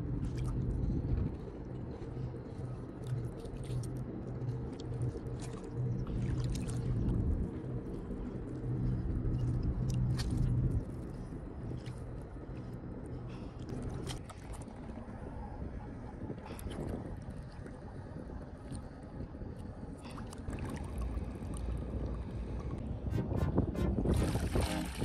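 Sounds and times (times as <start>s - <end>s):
steady low rumble: 0.0s - 25.0s.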